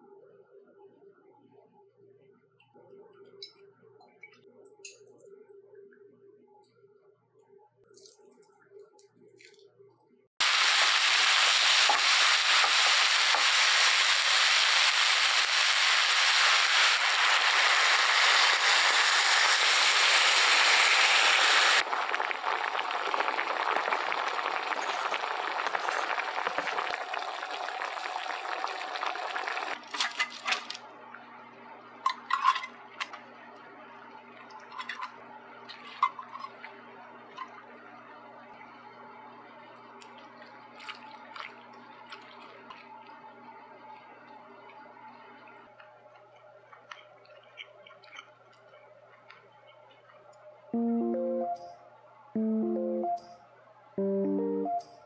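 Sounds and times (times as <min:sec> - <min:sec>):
vegetables sizzling in a frying pan: 0:10.4 - 0:29.7.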